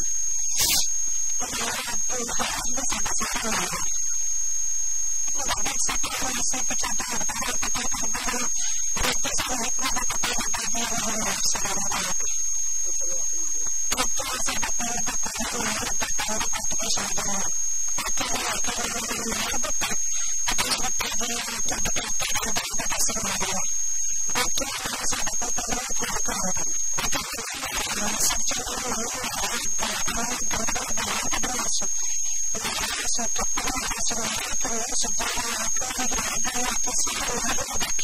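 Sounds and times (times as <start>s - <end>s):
high-pitched whine and hiss: 0.0s - 38.0s
woman speaking: 1.4s - 4.0s, 5.4s - 12.4s, 14.0s - 23.7s, 27.6s - 38.0s.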